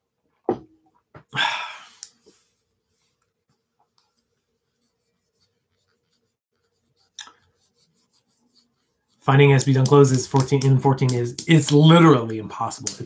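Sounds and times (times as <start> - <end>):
hands scratching on a desk: 3.0 - 11.4.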